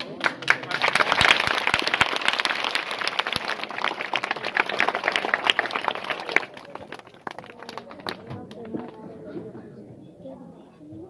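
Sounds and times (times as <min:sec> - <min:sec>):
children applauding: 0:00.0 - 0:08.6.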